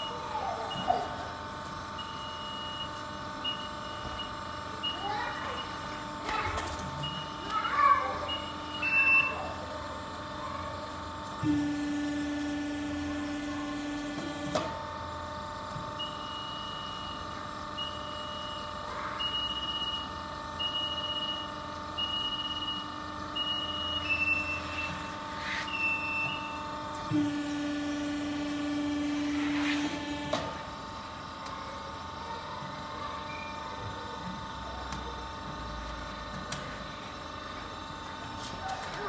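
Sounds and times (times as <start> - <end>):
hydraulic pump motor hum: 8.3 - 18.2, 20.4 - 32.1
short electronic beeps: 23.4 - 25.1.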